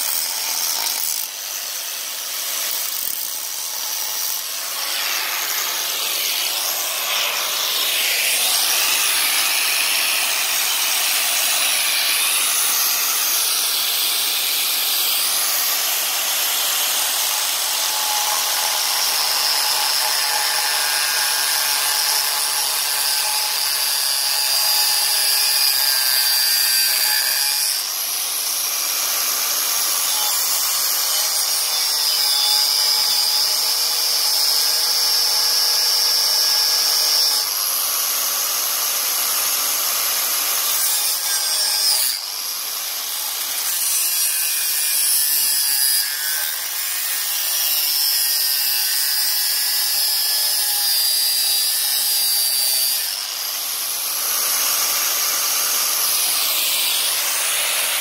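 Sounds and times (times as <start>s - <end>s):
angle grinder cutting steel: 0.0s - 58.0s.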